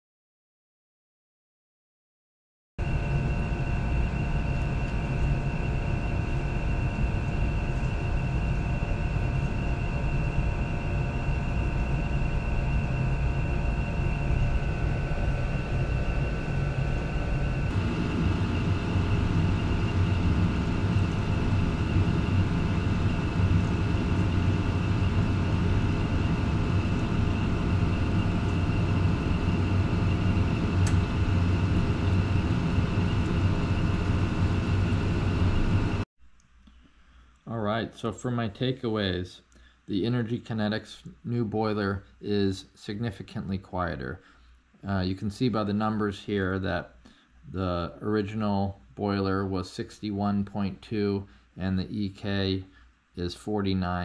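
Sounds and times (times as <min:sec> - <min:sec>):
faint steady tones: 0:02.8 - 0:35.8
oil boiler burner droning: 0:02.8 - 0:54.0.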